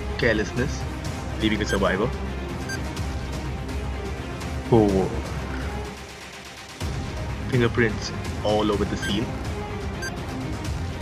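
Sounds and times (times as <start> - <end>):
film score music: 0.0 - 11.0.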